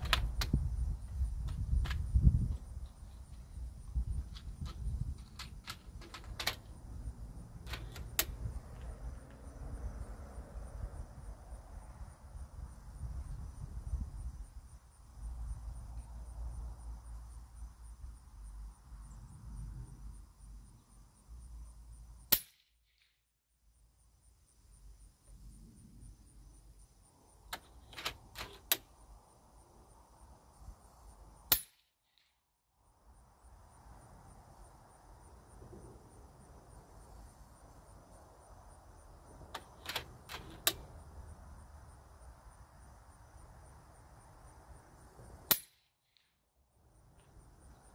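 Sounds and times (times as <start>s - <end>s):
air rifle action clicks: 0.0s - 0.6s, 4.2s - 6.7s, 7.6s - 8.4s, 27.5s - 28.9s, 39.6s - 40.9s.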